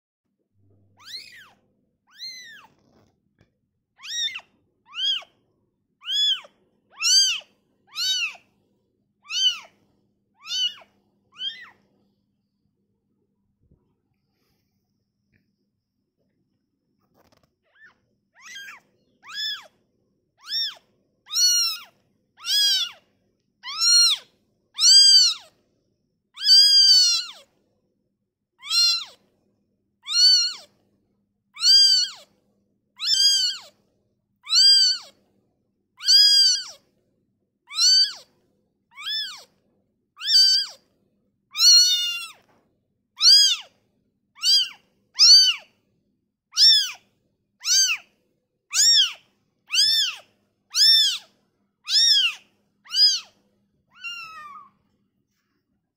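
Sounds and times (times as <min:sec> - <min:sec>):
kitten meowing: 0:01.0 - 0:03.0, 0:04.0 - 0:05.3, 0:06.0 - 0:08.4, 0:09.2 - 0:09.7, 0:10.4 - 0:11.8, 0:17.2 - 0:19.7, 0:20.4 - 0:23.0, 0:23.6 - 0:25.5, 0:26.4 - 0:27.5, 0:28.6 - 0:29.2, 0:30.0 - 0:30.7, 0:31.6 - 0:32.3, 0:33.0 - 0:33.8, 0:34.4 - 0:35.2, 0:36.0 - 0:36.8, 0:37.7 - 0:38.3, 0:38.9 - 0:39.5, 0:40.2 - 0:40.8, 0:41.5 - 0:42.4, 0:43.2 - 0:43.7, 0:44.4 - 0:45.7, 0:46.5 - 0:47.0, 0:47.6 - 0:48.1, 0:48.7 - 0:54.7.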